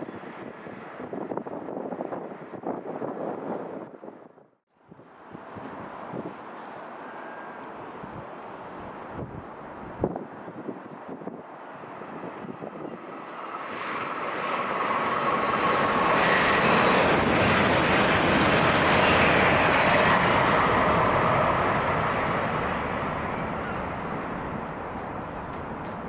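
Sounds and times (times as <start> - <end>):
train rumbling past: 11.2 - 26.0.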